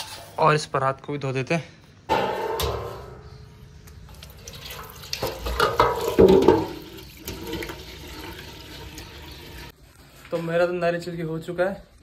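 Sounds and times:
tap water running into sink: 4.1s - 9.7s
platter knocking: 5.3s - 6.8s.

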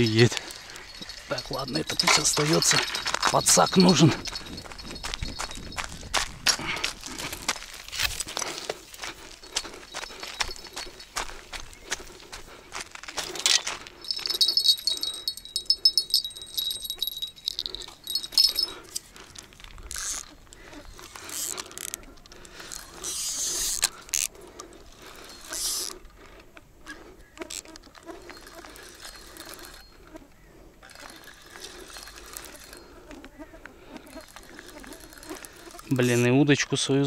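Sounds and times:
fishing reel ticking whir: 21.0s - 22.0s, 22.6s - 24.3s, 25.4s - 26.1s, 27.5s - 30.2s, 30.8s - 32.9s, 34.0s - 36.0s.

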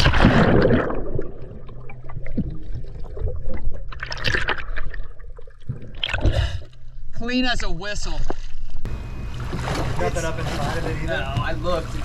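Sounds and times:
underwater water gurgling: 0.0s - 6.9s.

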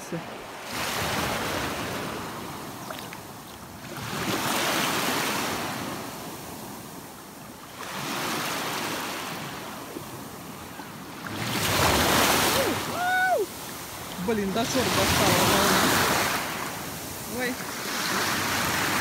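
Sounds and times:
waves washing over pebbles: 11.3s - 19.0s.

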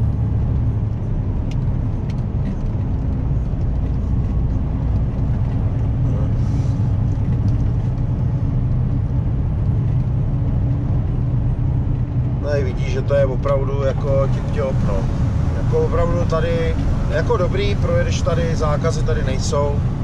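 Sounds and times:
tyre and road rumble: 0.0s - 20.0s
vehicle engine drone: 0.0s - 20.0s.

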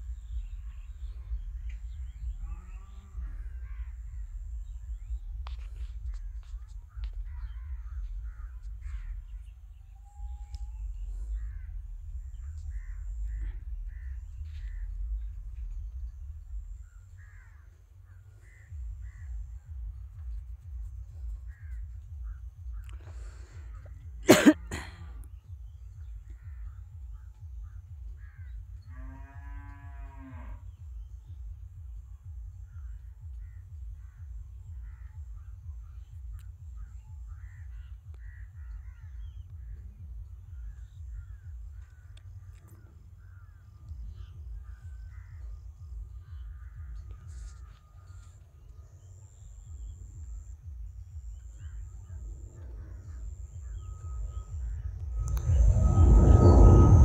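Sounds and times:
low rumble: 0.0s - 24.3s, 24.9s - 57.0s
faint bird calls: 0.0s - 57.0s
cow mooing: 28.9s - 30.6s.

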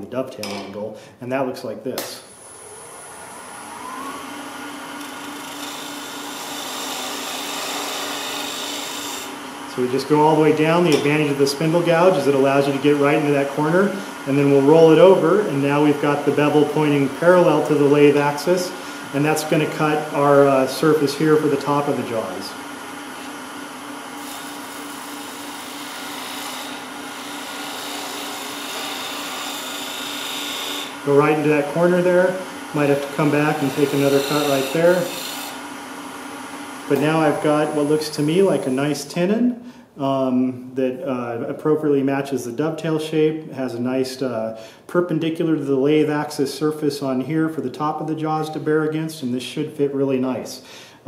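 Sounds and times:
lathe humming: 2.3s - 39.0s.

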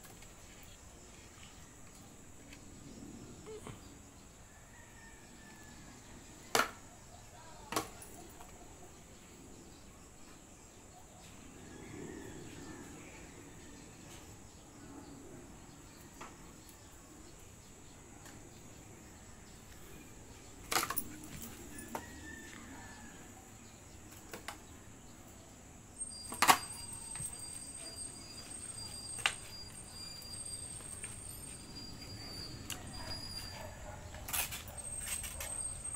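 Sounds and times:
faint high whine: 11.4s - 35.9s.

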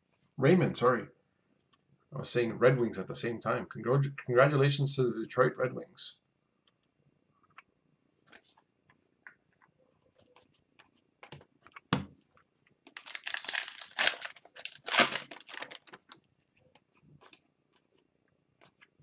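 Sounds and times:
foil wrapper tearing and crinkling: 12.9s - 16.2s.

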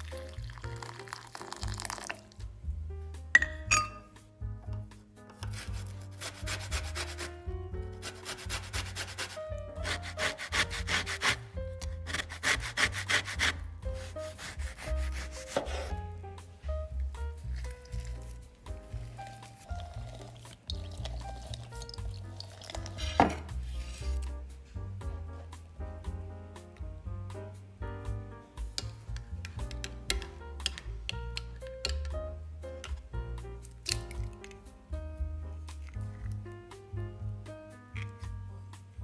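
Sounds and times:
soft music: 0.0s - 39.0s
orange rasping on a grater: 5.5s - 7.4s, 8.0s - 15.9s.

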